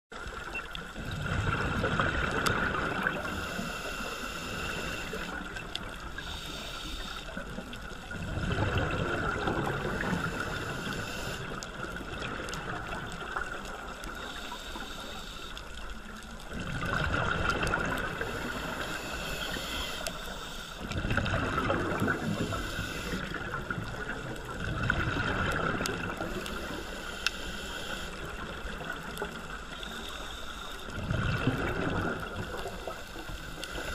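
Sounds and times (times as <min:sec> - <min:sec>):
steady regulator hiss: 0:03.0 - 0:07.8, 0:09.6 - 0:11.8, 0:13.3 - 0:16.3, 0:18.0 - 0:21.0, 0:22.0 - 0:23.5, 0:26.2 - 0:31.0, 0:32.3 - 0:33.9.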